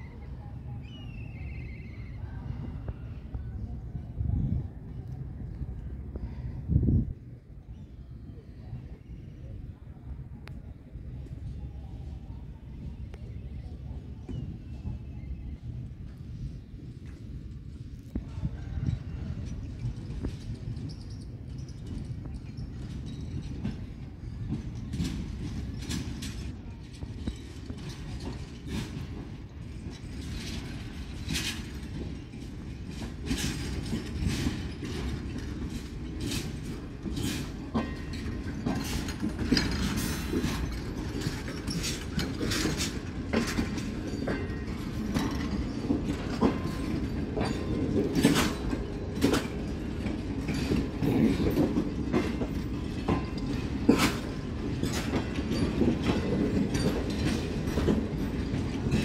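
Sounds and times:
train coaches rumbling: 0.0 - 59.0
wheels clicking over rail joints: 18.6 - 59.0.

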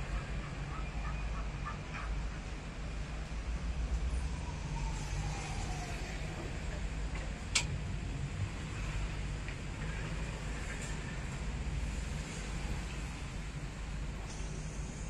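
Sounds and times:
low street rumble: 0.0 - 15.0.

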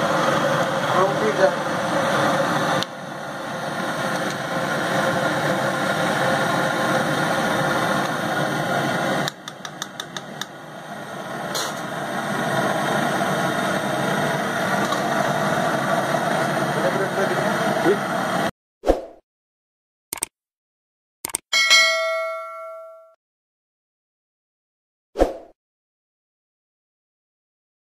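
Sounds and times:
stove burner roaring: 0.0 - 18.5.

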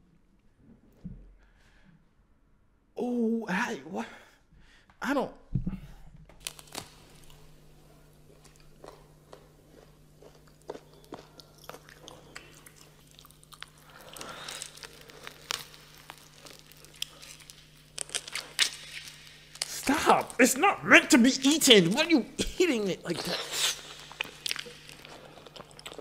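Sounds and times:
faint steady hum: 0.0 - 26.0
woman biting and chewing: 8.2 - 19.7, 23.4 - 26.0.

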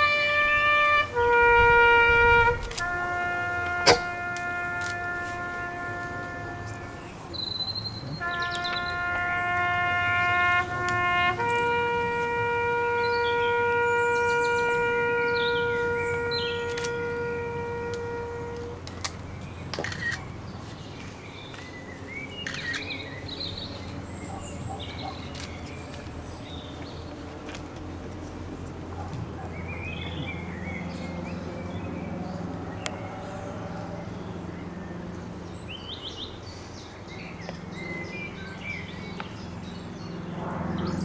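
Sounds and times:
brass horn bugle call: 0.0 - 19.2, 30.6 - 34.8
birds chirping: 0.0 - 41.0.

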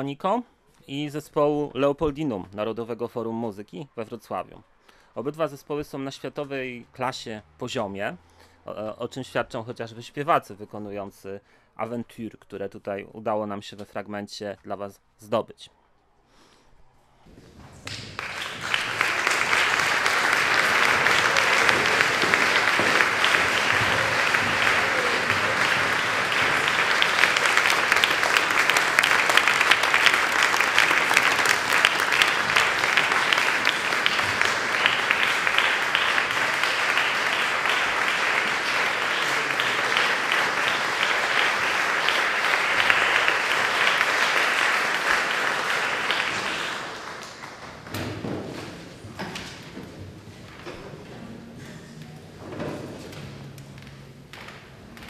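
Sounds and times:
audience applauding: 17.6 - 50.8.

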